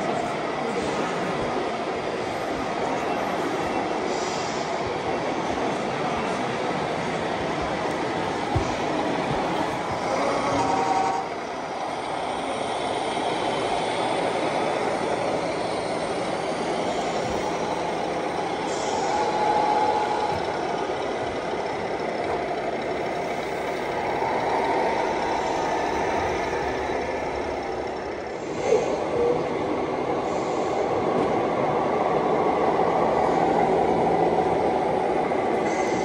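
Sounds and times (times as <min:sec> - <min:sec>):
simulated diesel truck engine: 0:07.2 - 0:29.1.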